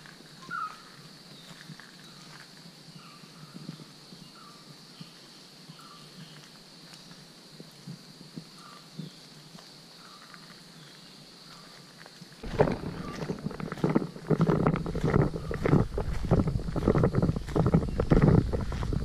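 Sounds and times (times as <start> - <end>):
high insect drone: 0.0 - 19.0
footsteps on dirt path: 12.0 - 19.0.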